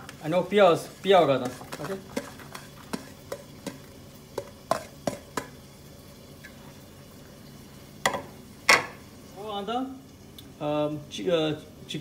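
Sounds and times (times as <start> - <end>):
faint steady hiss: 0.0 - 12.0
utensil knocking in a pan: 1.4 - 5.6, 8.0 - 9.0.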